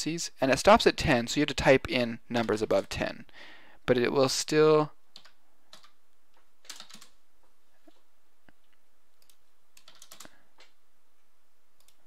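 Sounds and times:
keyboard and mouse clicking: 5.2 - 7.2, 8.6 - 10.8, 11.8 - 12.0.

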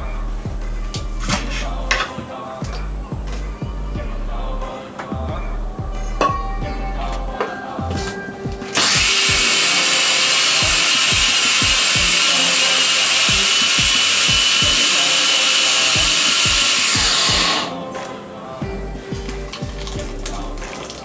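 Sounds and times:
blender motor running: 8.8 - 17.7.

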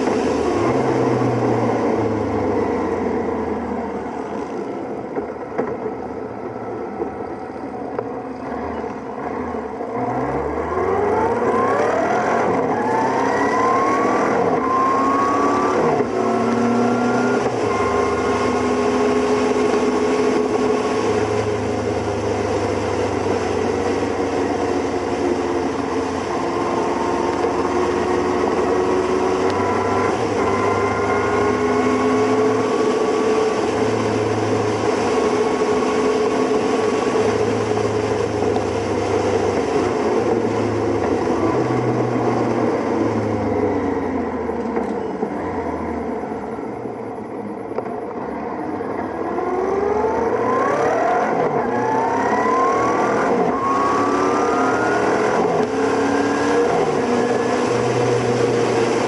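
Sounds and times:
wind and road noise: 0.0 - 59.0
motorcycle engines running: 15.8 - 52.1.

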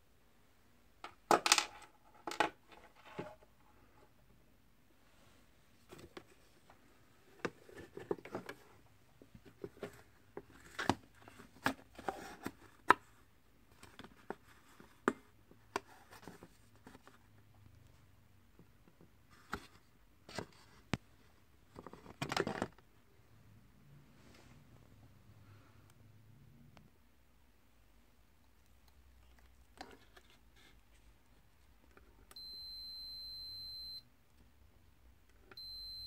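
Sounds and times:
plastic parts clicking and knocking: 1.0 - 3.4, 21.7 - 22.8.

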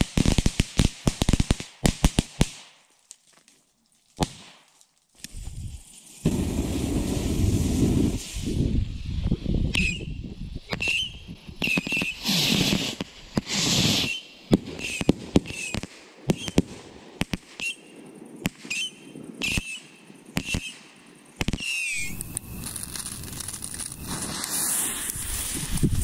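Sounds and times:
firework fuse hissing: 4.1 - 26.0
firework whistles: 4.2 - 26.0
fireworks banging: 5.3 - 8.6, 10.7 - 17.9, 21.4 - 26.0.

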